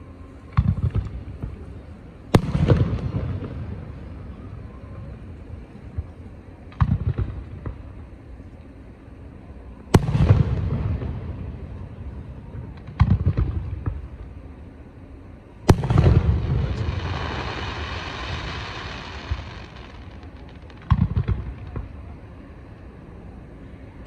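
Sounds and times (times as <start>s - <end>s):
fireworks booming: 15.7s - 22.2s
fireworks crackling hiss: 15.7s - 22.4s.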